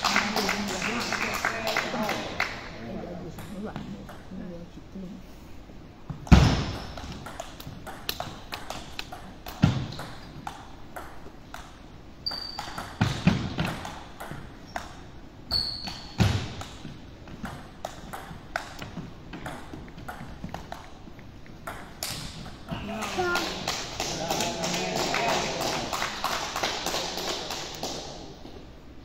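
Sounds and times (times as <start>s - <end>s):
shoe soles squeaking on floor: 12.2s - 13.1s, 14.6s - 16.4s.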